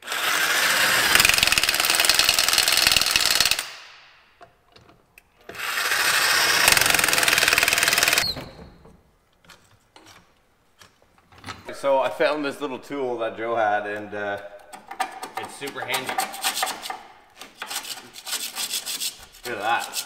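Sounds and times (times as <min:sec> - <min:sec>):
impact wrench hammering: 0:00.8 - 0:04.1, 0:05.5 - 0:08.3, 0:14.6 - 0:18.0.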